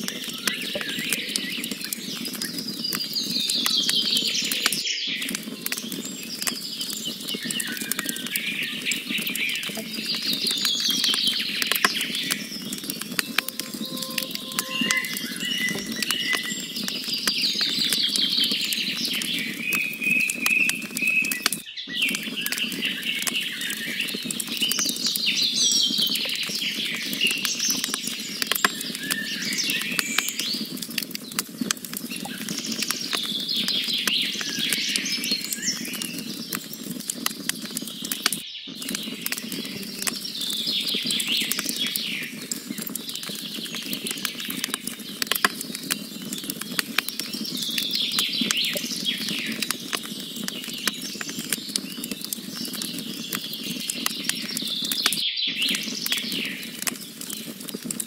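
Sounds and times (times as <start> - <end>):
campfire crackling and popping: 0.0 - 58.0
birds chirping and trilling: 0.2 - 24.2.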